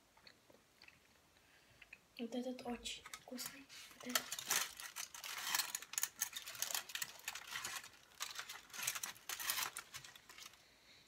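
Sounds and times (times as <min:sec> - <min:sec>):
aluminium foil crinkling: 0:03.0 - 0:10.6.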